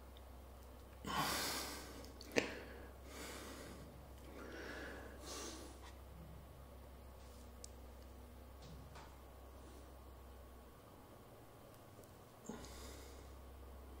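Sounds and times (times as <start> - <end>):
man breathing heavily: 1.0 - 6.0, 12.4 - 13.4.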